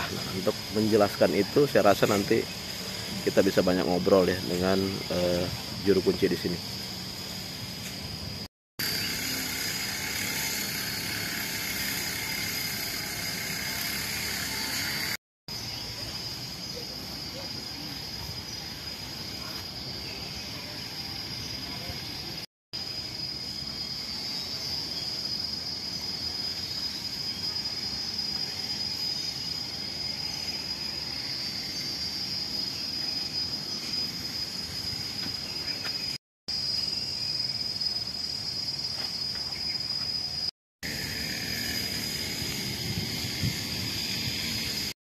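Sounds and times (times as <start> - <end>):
insects droning: 0.0 - 45.0.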